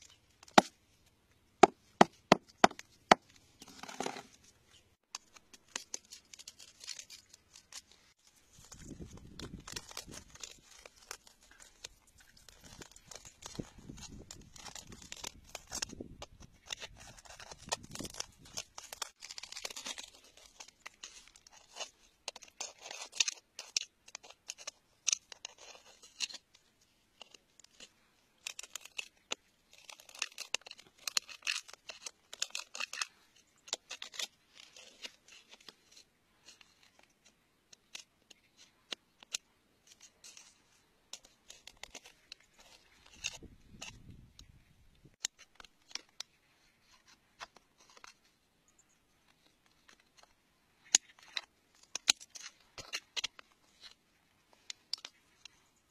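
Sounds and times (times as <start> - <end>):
metal pick scraping rock: 1.6 - 4.4.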